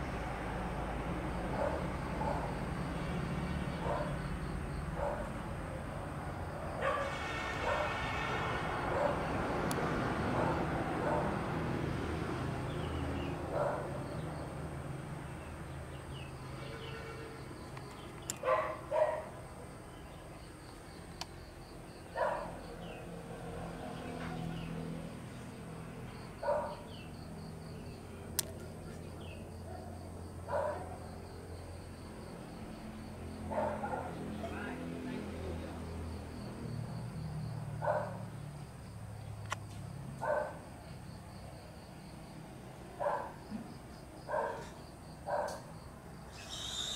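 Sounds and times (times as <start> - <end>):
dog barking: 1.5 - 2.6, 3.8 - 4.2, 5.0 - 5.3, 6.8 - 8.0, 8.9 - 9.2, 10.4 - 11.4, 13.5 - 13.9, 18.4 - 19.3, 22.2 - 22.6, 26.4 - 26.8, 29.7 - 31.0, 33.5 - 34.2, 37.8 - 38.2, 40.2 - 40.6, 43.0 - 43.4, 44.3 - 45.7.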